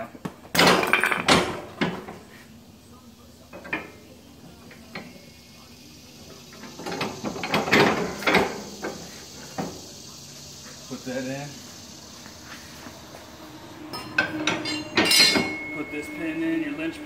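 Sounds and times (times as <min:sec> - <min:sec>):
clattering metal knocks: 0:13.9 - 0:16.1.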